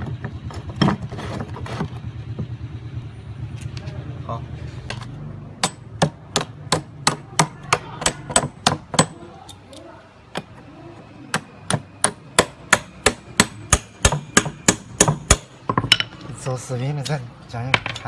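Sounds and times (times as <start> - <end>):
hammer tapping anchor bolt: 5.6 - 9.2, 11.3 - 16.1.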